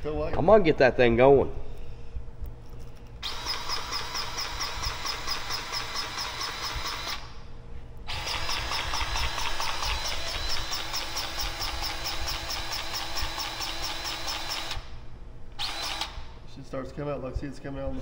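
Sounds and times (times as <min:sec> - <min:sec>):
cordless grease gun clicking: 0:03.2 - 0:07.3, 0:08.1 - 0:14.9.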